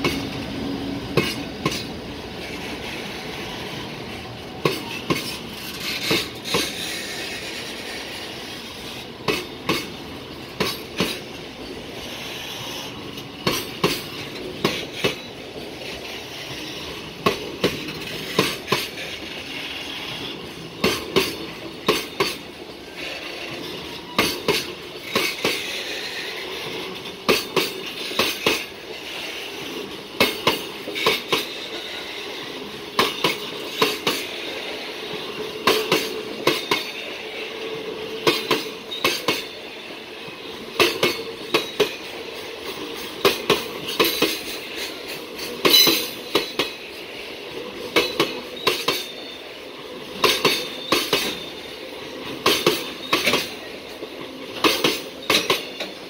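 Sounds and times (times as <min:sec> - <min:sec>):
train rolling rumble: 0:00.0 - 0:56.0
wheels clacking over rail joints: 0:00.0 - 0:56.0.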